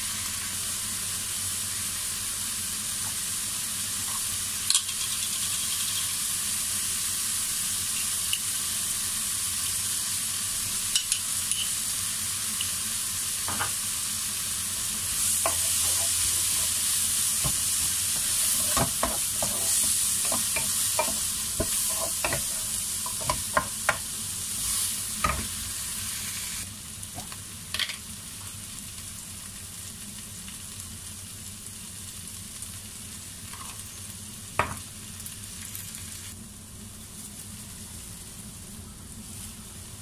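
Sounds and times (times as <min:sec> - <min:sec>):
vegetables sizzling in a frying pan: 0:00.0 - 0:40.0
wooden spatula knocking on pan: 0:23.1 - 0:24.0.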